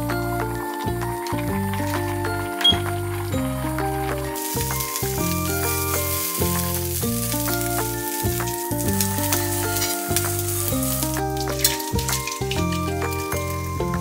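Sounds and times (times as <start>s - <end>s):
background music: 0.0s - 14.0s
bacon sizzling in a frying pan: 4.4s - 13.6s.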